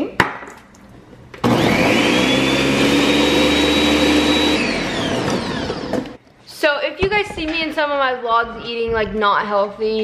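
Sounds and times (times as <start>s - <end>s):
blender motor whine: 1.4s - 6.2s.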